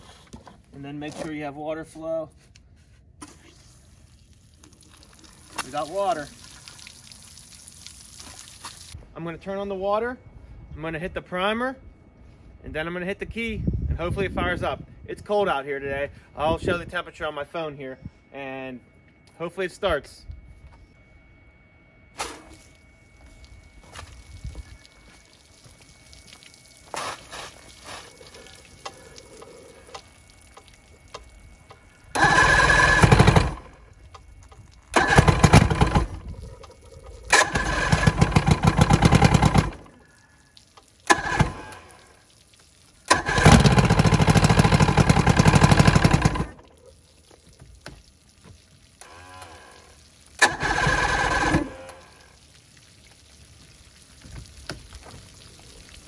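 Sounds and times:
outboard motor starter cranking: 32.1 - 33.8, 34.9 - 36.3, 37.3 - 39.9, 41.1 - 41.9, 43.1 - 46.6, 50.4 - 52.0.

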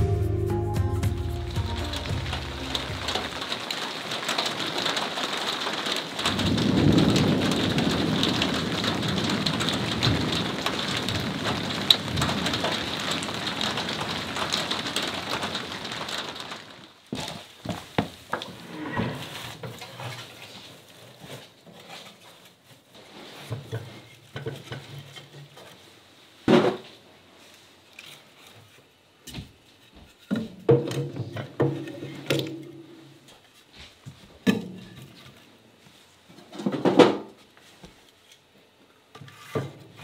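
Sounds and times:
kindling sticks clattering: 1.2 - 5.1
dry twigs rustling: 1.3 - 17.9.

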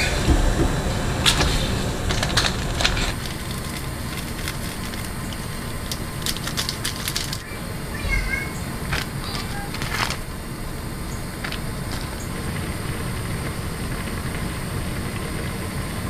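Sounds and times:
sharp crackles and ticks: 0.0 - 8.1, 11.1 - 16.0
broth boiling in a pot: 0.0 - 16.0.

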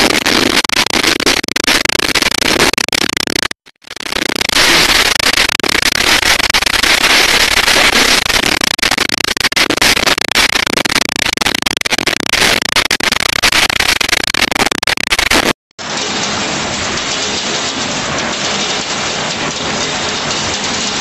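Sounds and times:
heavy rain against surfaces: 15.8 - 21.0.

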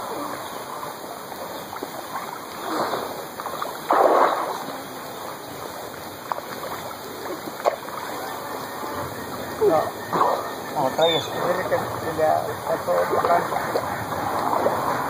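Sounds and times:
water splashing: 0.0 - 15.0
loud splash: 2.6 - 5.0.

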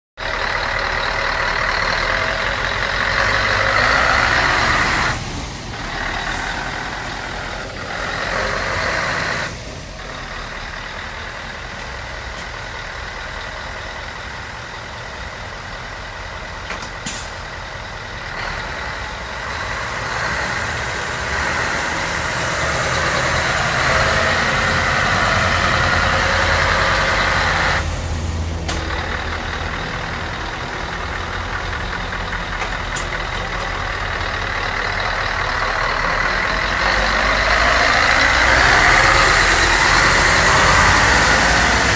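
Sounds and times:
diesel truck engine running: 0.2 - 41.9.

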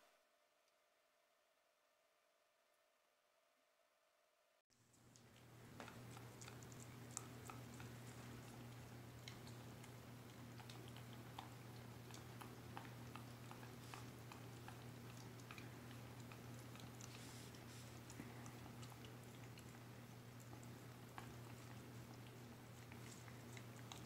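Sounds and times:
steady low hum: 4.8 - 24.0
dog licking and lip-smacking: 4.9 - 24.0.

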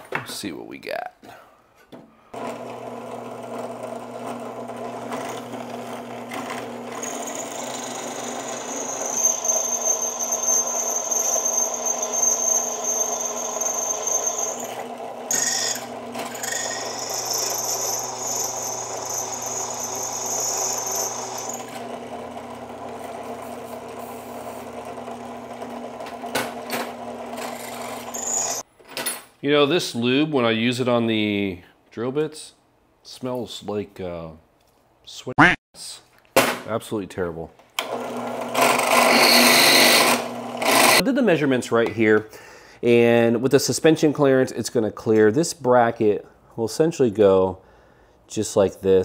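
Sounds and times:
electric drill running: 2.4 - 28.6, 37.8 - 41.0
high cutting squeal: 7.0 - 21.9, 27.5 - 28.6, 39.0 - 41.0.

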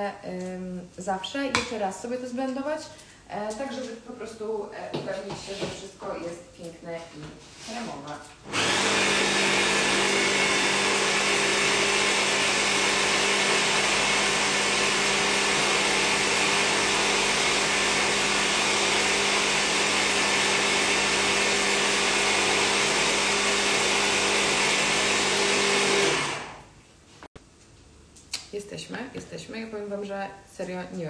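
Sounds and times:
electric hand blender running: 8.4 - 26.7.

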